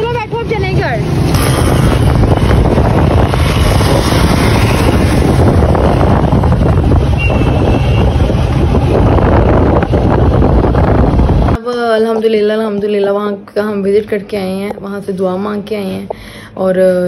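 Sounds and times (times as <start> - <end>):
deep rumble: 0.0 - 11.6
wind rushing on microphone: 0.0 - 11.6.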